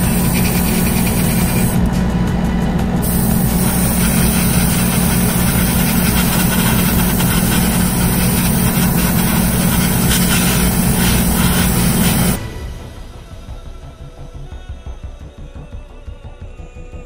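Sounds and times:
exhaust fan humming and hissing: 0.0 - 12.6.

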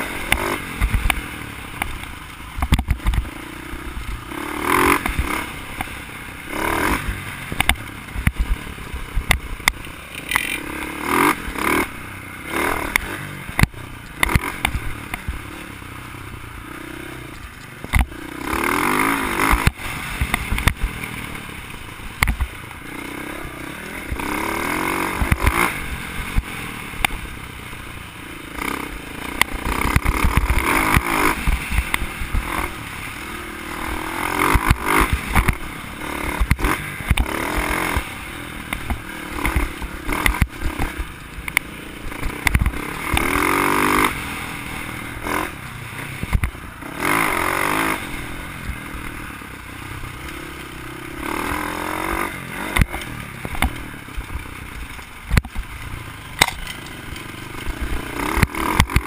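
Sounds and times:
bike clattering over bumps: 0.0 - 3.4, 51.4 - 59.0
dirt bike engine revving: 0.0 - 59.0.

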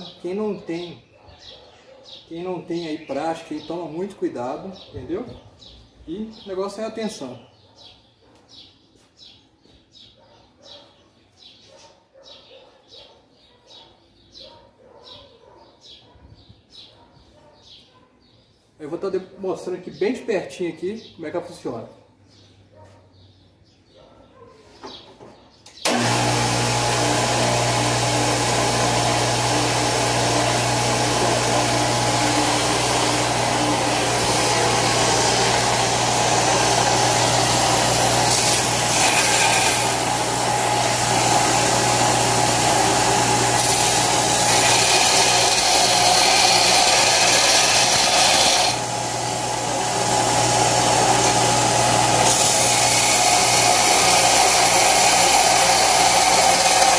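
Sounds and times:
belt grinder motor humming: 25.8 - 56.9
steel grinding on belt: 25.9 - 56.9.

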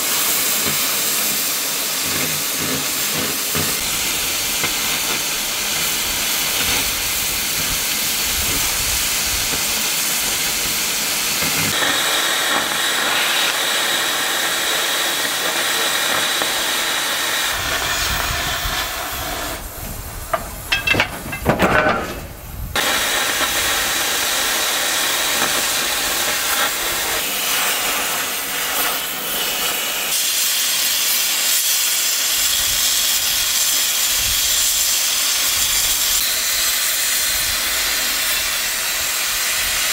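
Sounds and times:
cutting torches hissing: 0.0 - 39.9
sharp metallic knocks: 20.3 - 22.3.

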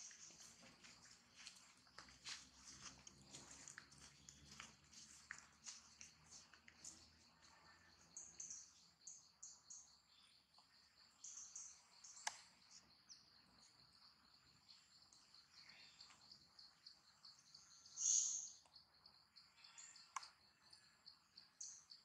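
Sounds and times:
insects chirring: 0.0 - 22.0
short insect chirps: 5.8 - 22.0.

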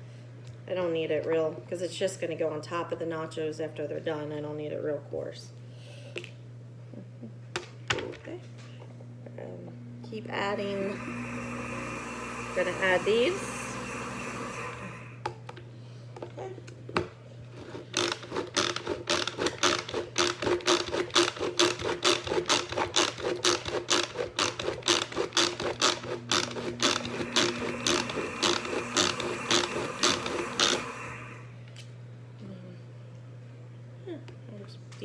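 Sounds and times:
manual food chopper clacking: 17.6 - 31.2.

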